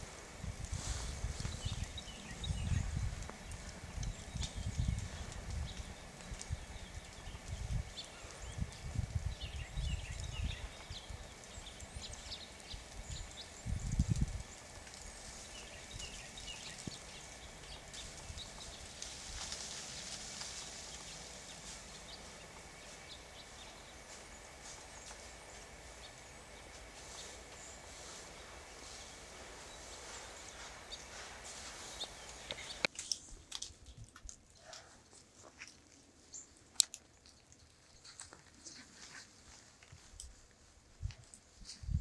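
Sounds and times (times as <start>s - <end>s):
steady hiss: 0.0s - 33.0s
snow ticking on leaves: 0.0s - 34.7s.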